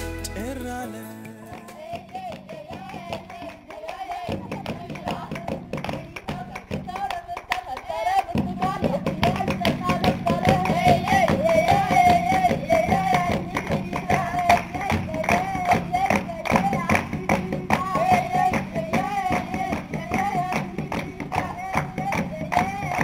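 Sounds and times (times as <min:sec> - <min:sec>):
high voice singing: 0:00.0 - 0:05.3
hand clapping: 0:01.3 - 0:23.0.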